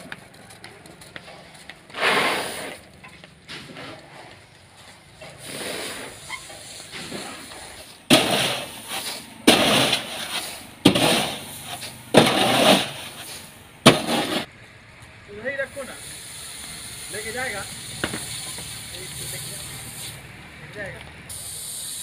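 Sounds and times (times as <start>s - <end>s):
quiet outdoor ambience: 0.0s - 22.0s
grain scraping over metal: 3.5s - 14.5s.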